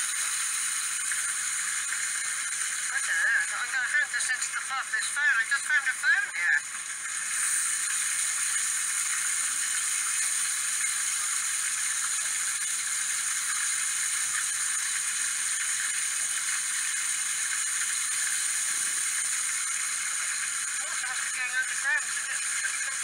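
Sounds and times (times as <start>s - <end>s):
water rushing over rocks: 2.3s - 7.0s, 20.2s - 23.0s.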